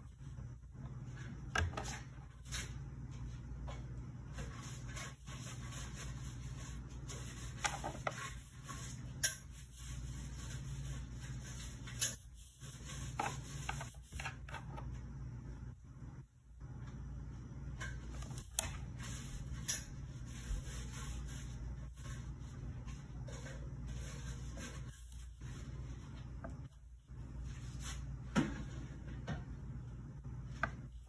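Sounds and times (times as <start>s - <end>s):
rubbing and scraping: 4.3s - 14.8s.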